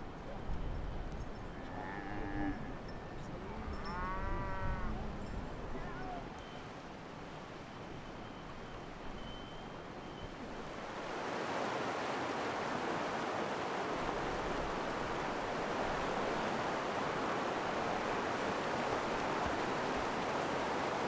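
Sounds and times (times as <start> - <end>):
stream rushing over rocks: 10.6 - 21.0.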